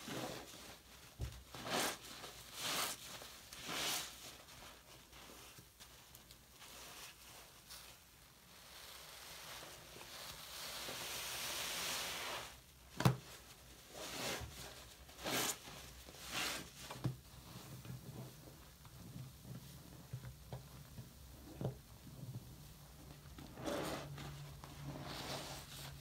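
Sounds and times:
foamy sponge hiss: 8.5 - 12.7.

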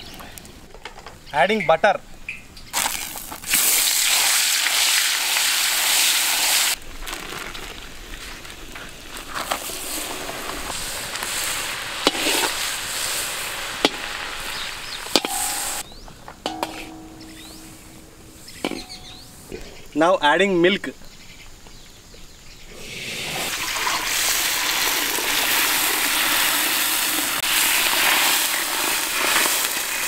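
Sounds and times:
butter sizzling in a pan: 9.1 - 15.8, 23.4 - 30.0.

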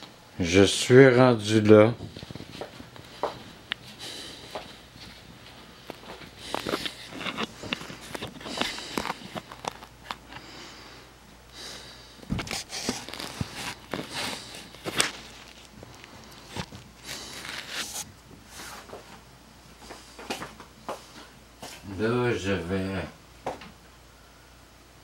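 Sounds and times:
footsteps: 1.6 - 10.6, 12.2 - 19.2, 19.8 - 21.8
camera handling rustle: 5.8 - 10.4, 12.2 - 18.1.

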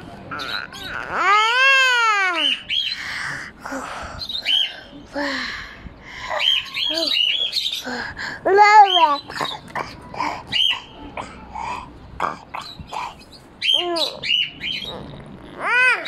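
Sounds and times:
toddler calling out: 0.3 - 2.6, 15.6 - 16.0
high bird chirps: 12.6 - 15.0.

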